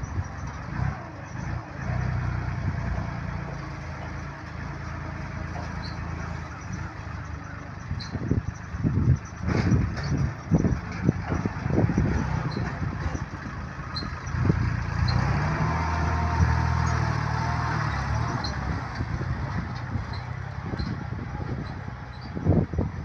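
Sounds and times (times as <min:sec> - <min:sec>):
tractor engine running: 0:00.0 - 0:23.0
sharp engine knocks: 0:09.4 - 0:13.4.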